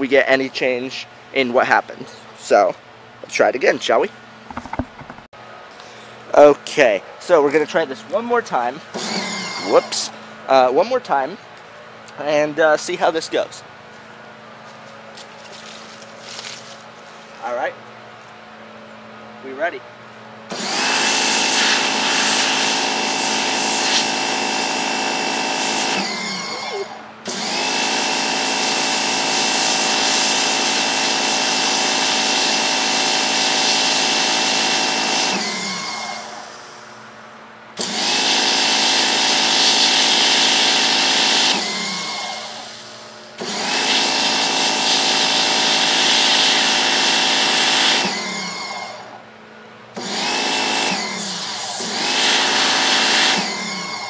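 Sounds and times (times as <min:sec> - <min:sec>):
pump and motor hum: 0:00.0 - 0:54.0
pressure washer water jet hiss: 0:20.8 - 0:24.2.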